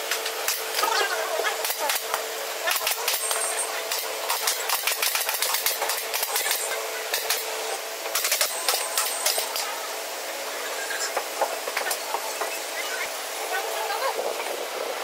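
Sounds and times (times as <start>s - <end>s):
pneumatic staple gun firing: 1.6s - 7.5s, 8.1s - 9.7s.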